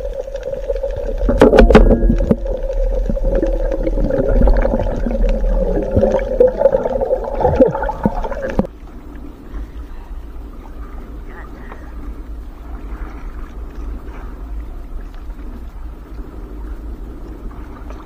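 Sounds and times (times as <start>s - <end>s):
muffled underwater hum: 0.0s - 18.0s
underwater knocks: 1.0s - 8.7s.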